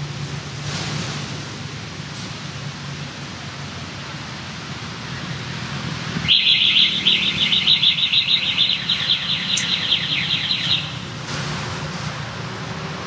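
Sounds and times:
bird trilling: 0:06.3 - 0:11.0.

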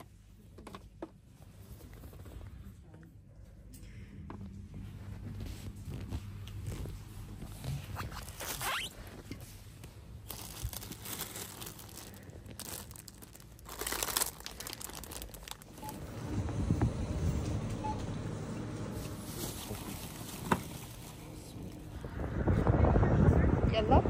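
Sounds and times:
steady low hum: 0:01.2 - 0:24.0
plastic bag crinkling: 0:10.2 - 0:15.8, 0:19.2 - 0:21.8.

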